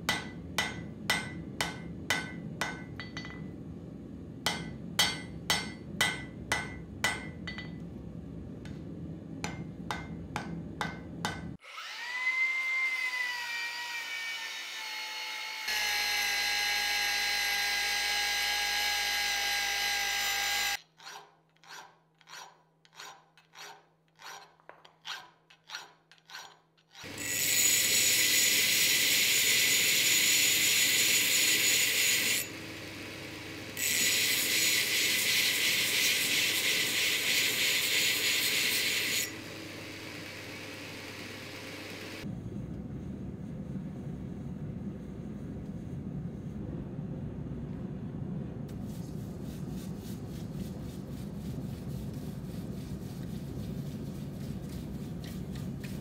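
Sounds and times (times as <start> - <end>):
hammer striking steel on anvil: 0.0 - 3.6, 4.4 - 7.9, 9.4 - 11.6
angle grinder grinding steel: 15.6 - 42.2
belt grinder running: 15.7 - 20.8, 27.0 - 42.2.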